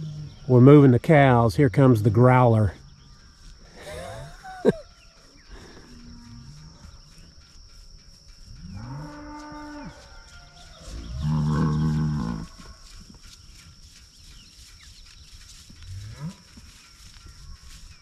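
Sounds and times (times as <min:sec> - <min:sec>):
cow mooing: 0:08.7 - 0:12.9.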